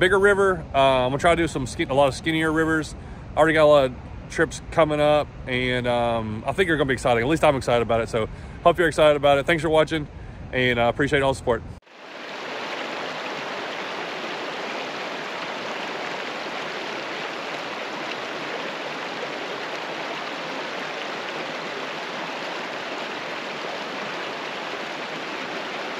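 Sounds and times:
river water rippling over rocks: 0:11.8 - 0:25.9.

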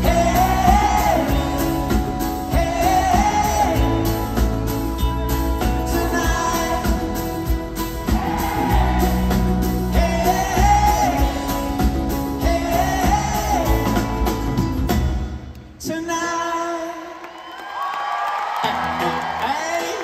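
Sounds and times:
man singing: 0:00.0 - 0:04.8, 0:05.6 - 0:14.6, 0:15.8 - 0:17.2, 0:19.4 - 0:20.0
pop-rock band playing: 0:00.0 - 0:15.8.

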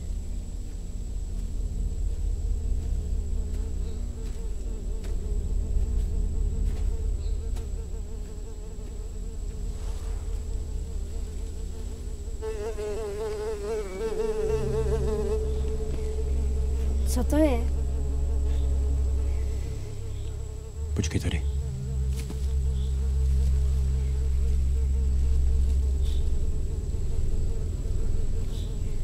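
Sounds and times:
flies buzzing: 0:00.0 - 0:29.0
steady low drone: 0:00.0 - 0:29.0.

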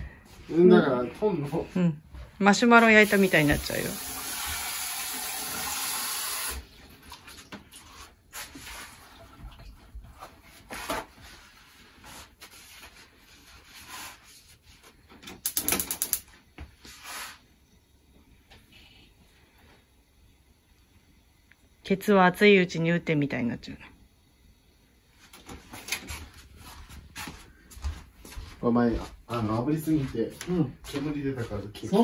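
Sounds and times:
gas torch hissing: 0:02.9 - 0:06.6.

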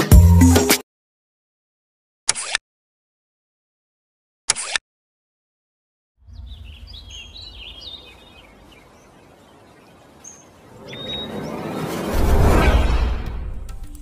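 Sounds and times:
birds chirping: 0:06.2 - 0:12.2
low outdoor ambience: 0:06.2 - 0:14.0.

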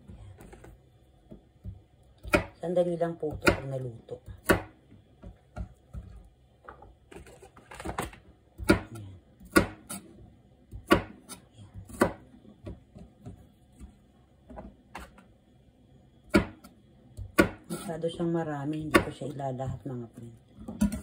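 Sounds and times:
knife chopping on cutting board: 0:01.7 - 0:02.6, 0:04.4 - 0:06.2, 0:08.6 - 0:10.1, 0:10.7 - 0:13.9, 0:16.3 - 0:17.9.

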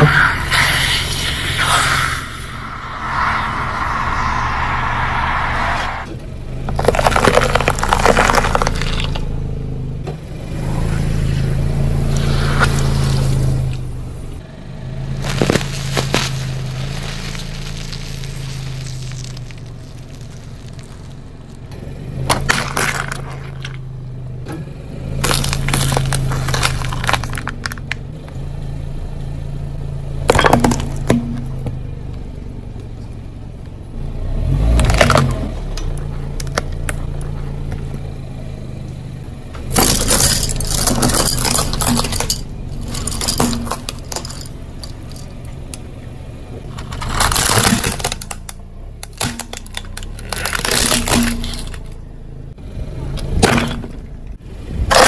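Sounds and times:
low engine hum: 0:00.0 - 0:55.0
tyre crushing plastic toys: 0:06.7 - 0:09.2, 0:15.2 - 0:21.0, 0:22.3 - 0:23.8, 0:25.2 - 0:28.0, 0:39.7 - 0:45.3, 0:46.7 - 0:52.0.

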